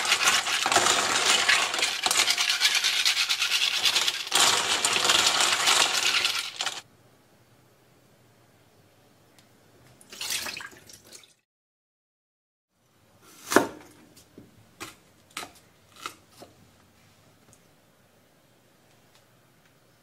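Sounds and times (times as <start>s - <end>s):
water splashing into sink: 10.1s - 11.4s.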